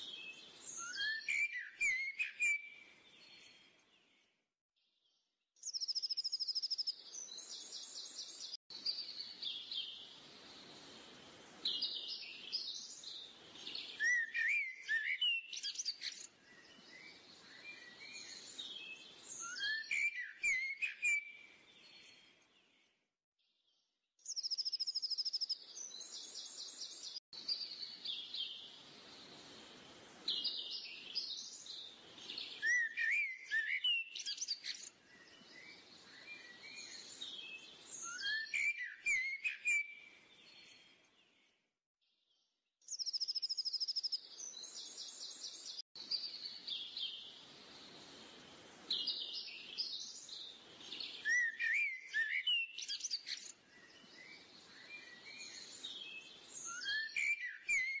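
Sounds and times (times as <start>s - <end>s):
small birds chirping: 0.0s - 4.4s, 5.0s - 41.6s, 42.3s - 58.0s
faint outdoor hiss: 5.7s - 21.0s, 24.3s - 38.9s, 43.0s - 57.9s.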